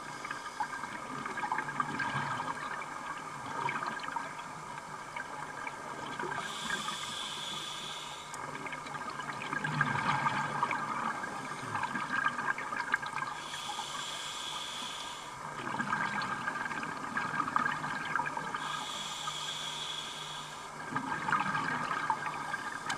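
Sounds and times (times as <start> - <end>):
exhaled bubbles gushing: 0.6 - 4.5, 8.4 - 13.4, 15.5 - 18.8, 20.7 - 22.9
regulator hissing inhalation: 6.4 - 8.4, 13.4 - 15.4, 18.6 - 20.7.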